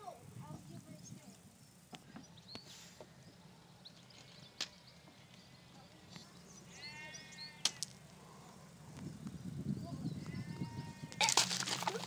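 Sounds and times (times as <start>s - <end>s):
bird chirps: 0.9s - 7.6s
sheep bleating: 6.7s - 7.8s, 10.2s - 11.4s.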